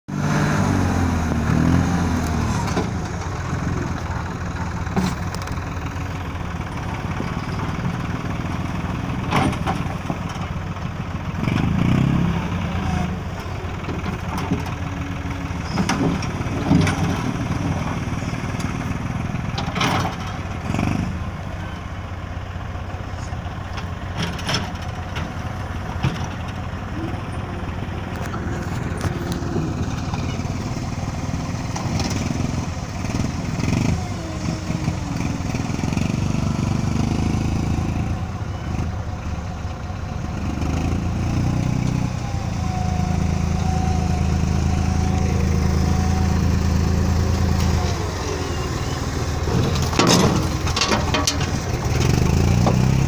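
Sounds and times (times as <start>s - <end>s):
tractor engine running: 0.1s - 53.0s
loader digging into stone: 49.4s - 53.0s.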